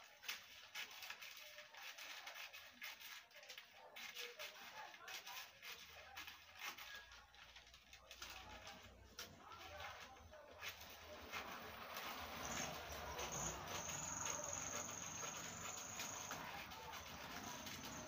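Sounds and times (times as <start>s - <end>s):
paper rustling: 0.0s - 18.0s
scissors cutting paper: 0.0s - 18.0s.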